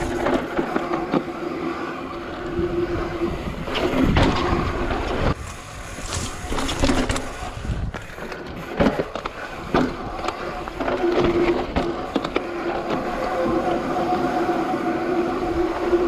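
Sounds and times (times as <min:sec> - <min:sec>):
rushing wind and tyre noise: 0:00.0 - 0:16.0
bike knocks and rattles: 0:03.7 - 0:13.2.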